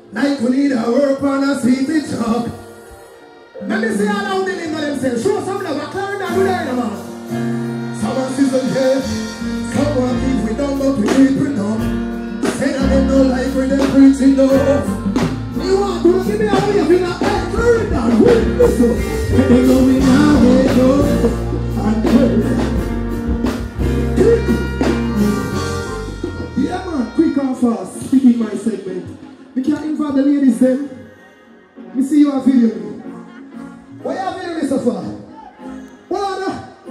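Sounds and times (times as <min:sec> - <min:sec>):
live band with heavy bass: 0:01.6 - 0:30.7
man singing into microphone: 0:07.8 - 0:23.0.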